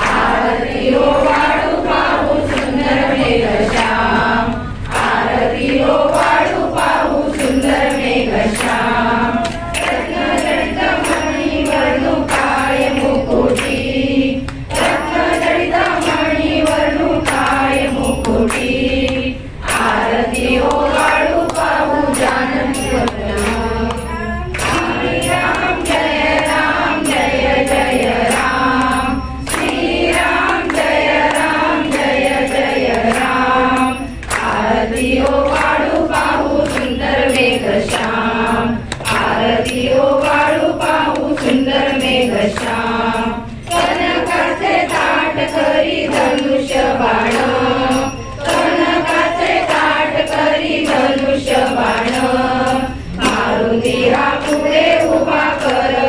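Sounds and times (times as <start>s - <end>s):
women singing in unison: 0.0s - 56.0s.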